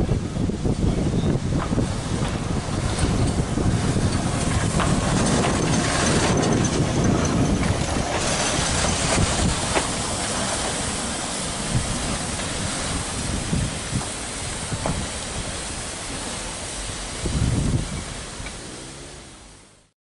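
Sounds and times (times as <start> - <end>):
steam locomotive rumbling: 0.0 - 19.9
wheels clanking: 1.3 - 16.9.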